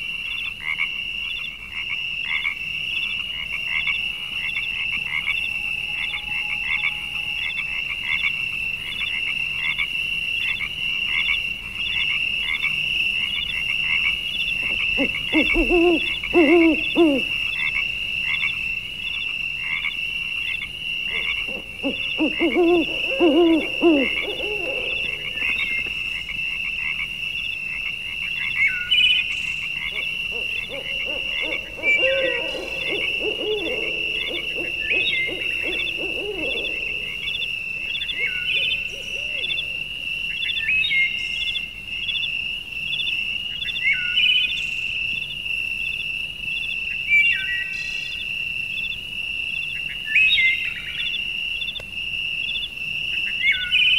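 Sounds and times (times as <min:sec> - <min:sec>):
low hooting calls: 0:03.0 - 0:08.4, 0:11.2 - 0:18.6, 0:20.5 - 0:27.1, 0:29.1 - 0:40.8
high-pitched animal chorus: 0:21.1 - 0:25.9, 0:29.8 - 0:39.9.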